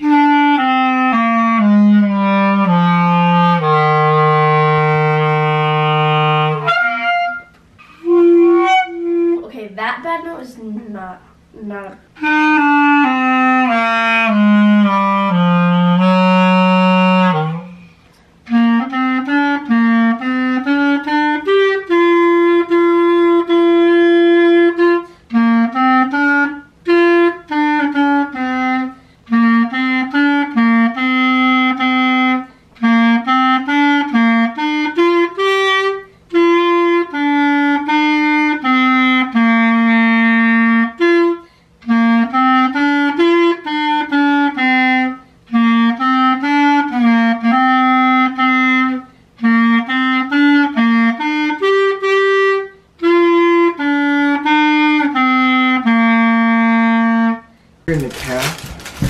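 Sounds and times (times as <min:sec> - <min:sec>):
solo clarinet melody: 0:00.0 - 0:09.5, 0:11.3 - 0:59.0.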